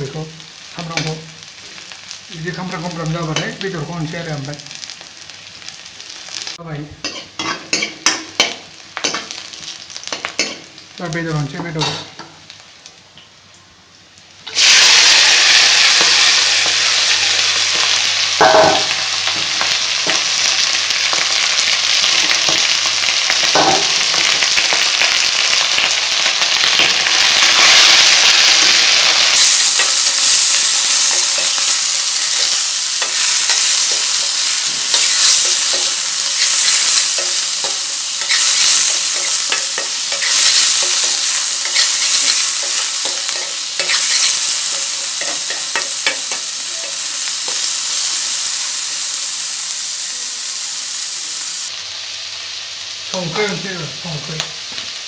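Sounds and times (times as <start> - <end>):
food sizzling in hot oil: 0.0 - 55.0
spatula scraping a metal pan: 35.7 - 44.4.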